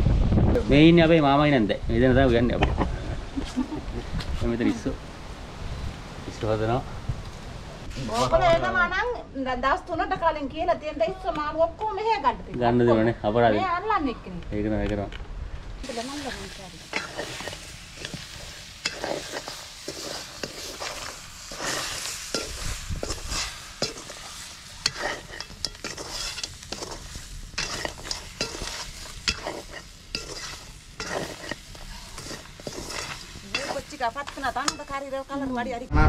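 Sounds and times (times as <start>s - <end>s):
frying hiss: 0.6s - 36.0s
spoon scraping and knocking a pan: 16.9s - 35.1s.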